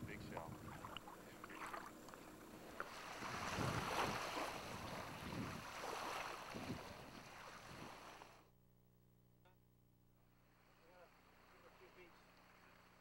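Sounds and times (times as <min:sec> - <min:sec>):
wind buffeting microphone: 0:00.0 - 0:01.3, 0:03.0 - 0:08.0
sea water rushing on rocky shore: 0:02.8 - 0:08.4.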